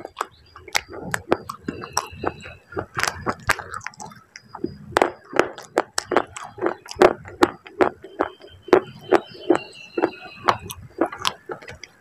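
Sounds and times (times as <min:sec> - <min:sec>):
chewing crisp crunches: 0:00.0 - 0:12.0.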